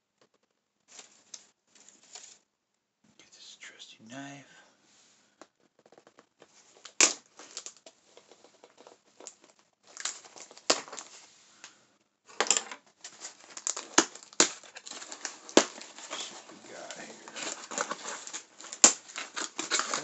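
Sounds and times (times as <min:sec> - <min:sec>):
wrapping crinkling and tearing: 0:05.9 - 0:11.7, 0:12.3 - 0:20.0.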